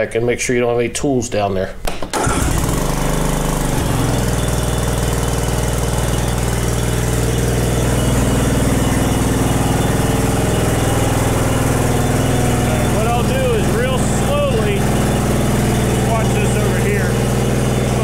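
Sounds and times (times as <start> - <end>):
riding mower engine running: 2.2 - 18.0.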